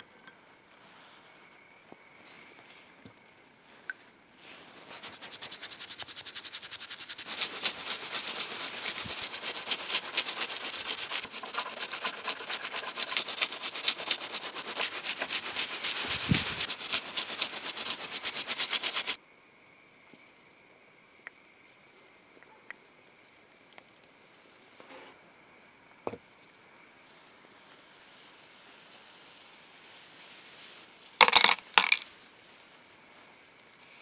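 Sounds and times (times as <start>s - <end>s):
toothbrush scrubbing metal: 4.9s - 19.2s.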